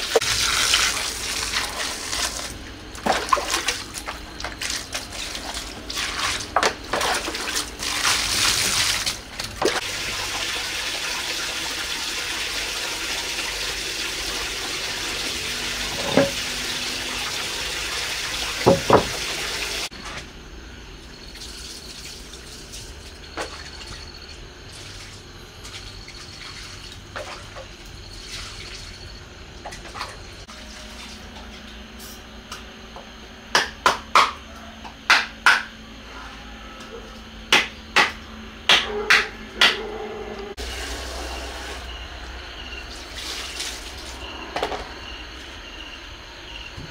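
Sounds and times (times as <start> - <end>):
water gushing into basin: 0.0 - 19.9, 21.3 - 29.1, 42.9 - 44.2.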